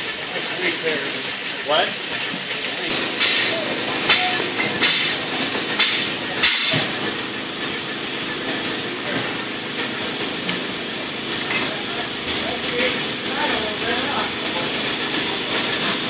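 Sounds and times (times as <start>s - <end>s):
steady machine noise: 0.0s - 16.0s
compressed air hisses: 3.2s - 7.0s.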